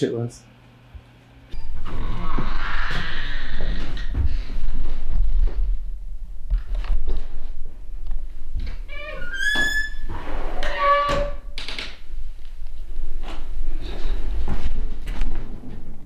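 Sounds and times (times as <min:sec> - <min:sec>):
low squeal: 0:01.5 - 0:04.2, 0:08.9 - 0:11.6
rising squeak: 0:01.5 - 0:04.2, 0:08.9 - 0:11.6.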